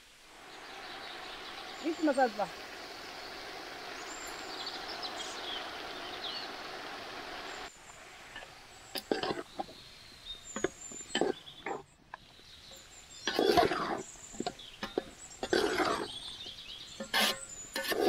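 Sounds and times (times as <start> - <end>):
steady outdoor hiss: 0.0 - 18.0
ladle scraping a metal pot: 13.2 - 16.2, 16.9 - 18.0.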